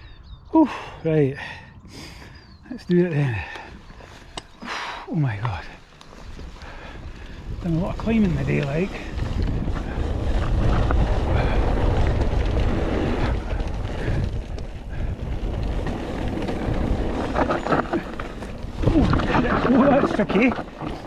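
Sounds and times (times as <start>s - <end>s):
bike tyre noise on trail: 0.0s - 21.0s
bike knocking and rattling: 5.4s - 21.0s
wind on microphone: 6.2s - 21.0s.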